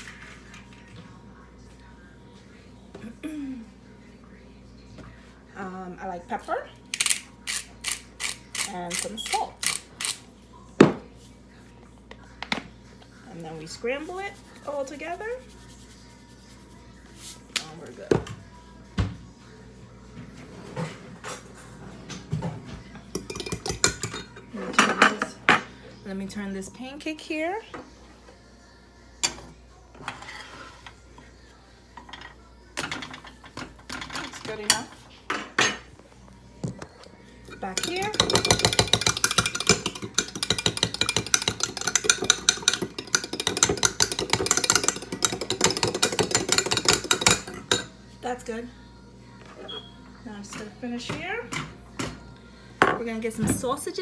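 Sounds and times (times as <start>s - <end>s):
metal utensil clinking on bowl: 37.5s - 47.9s.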